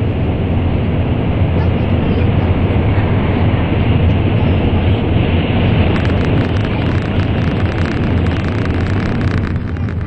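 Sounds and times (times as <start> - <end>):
train cabin rumble: 0.0 - 10.0
faint fast crackle of ticks: 5.9 - 10.0.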